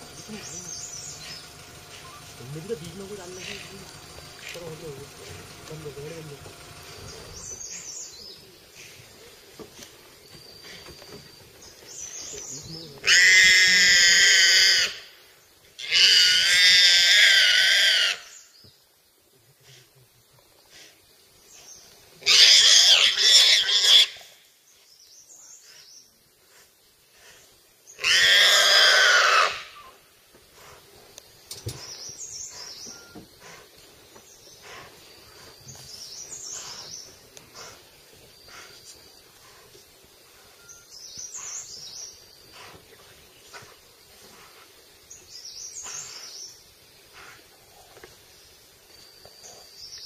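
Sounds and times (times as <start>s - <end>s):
faint bird chirping: 0.0s - 13.1s, 24.2s - 28.1s, 29.7s - 50.0s
wild boar squealing: 13.0s - 15.1s, 15.8s - 18.3s, 22.2s - 24.3s, 28.0s - 30.0s.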